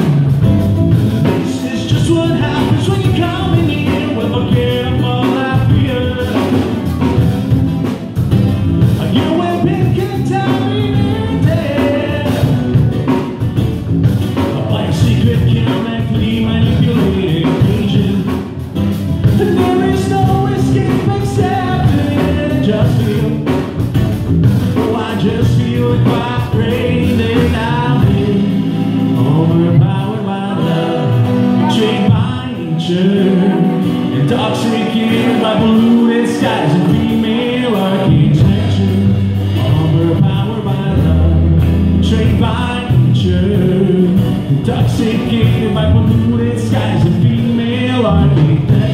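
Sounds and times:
acoustic guitar: 0.0 - 48.9
electric bass guitar: 0.0 - 48.9
man singing: 1.1 - 13.6, 14.2 - 18.6, 19.2 - 24.0, 24.6 - 48.9.

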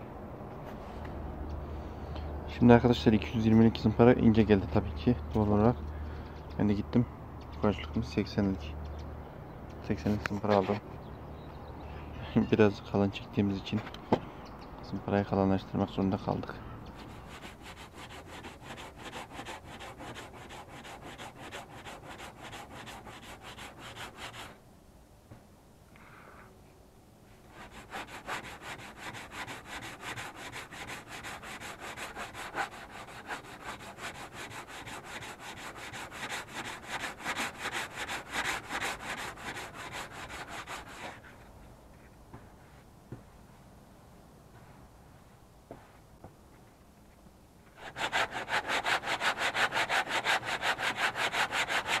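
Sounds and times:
hand sanding metal: 17.0 - 24.6, 27.4 - 41.4, 47.8 - 52.0.

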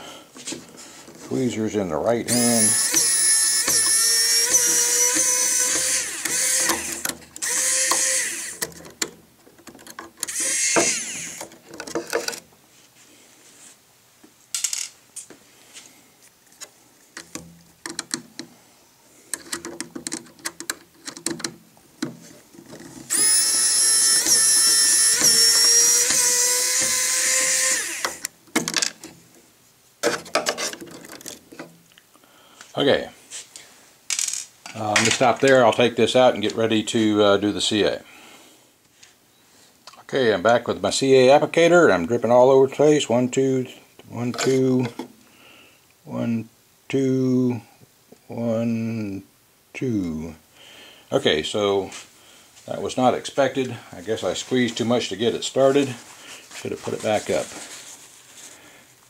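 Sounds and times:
electric screwdriver whining: 2.3 - 8.7, 10.2 - 11.6, 23.1 - 28.4
screws clicking and tapping: 2.6 - 12.4, 17.2 - 18.5, 19.3 - 22.1, 22.7 - 28.3.

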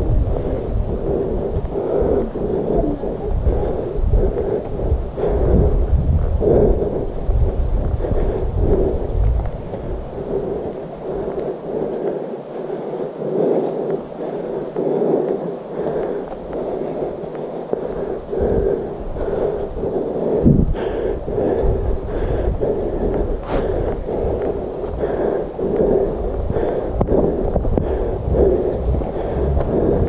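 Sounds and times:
wind buffeting microphone: 0.0 - 30.0
footsteps on dirt trail: 22.6 - 30.0.

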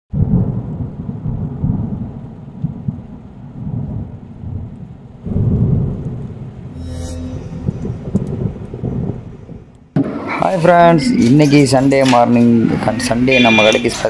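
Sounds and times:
rolling thunder: 0.1 - 6.8, 7.6 - 11.4.

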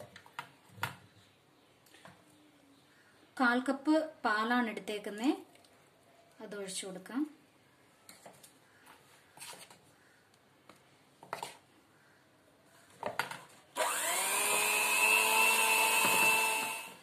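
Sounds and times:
electric mixer whirring: 13.8 - 17.0.

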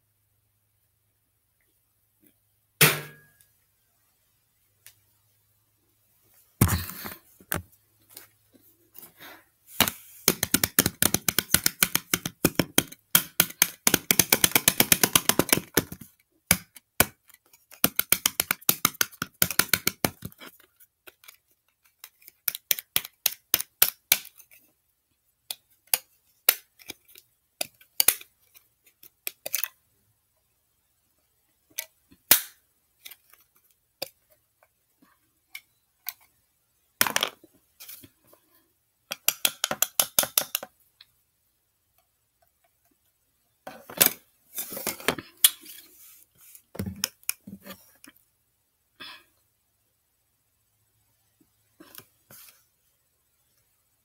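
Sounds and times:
plastic cases crackling and clicking: 9.8 - 24.4.

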